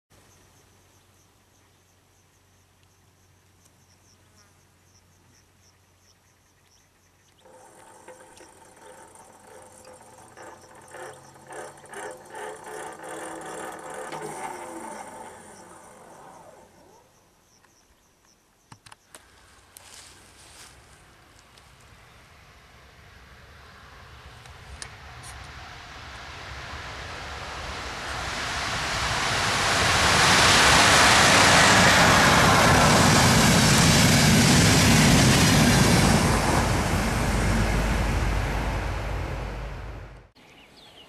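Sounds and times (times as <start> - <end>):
insects chirping: 0.2 - 19.2
train passing: 7.4 - 17.1, 19.8 - 40.4.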